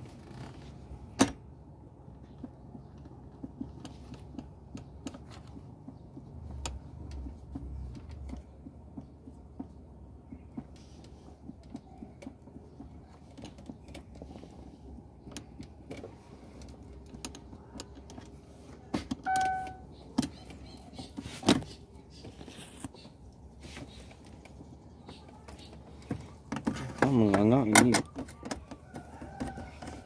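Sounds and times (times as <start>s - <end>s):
electronic beep: 19.3s - 19.9s.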